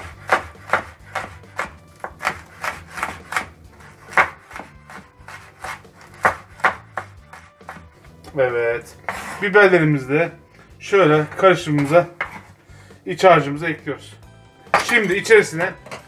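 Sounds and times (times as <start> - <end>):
knife chopping on wooden board: 0.0 - 7.9, 9.0 - 9.4, 11.2 - 12.6.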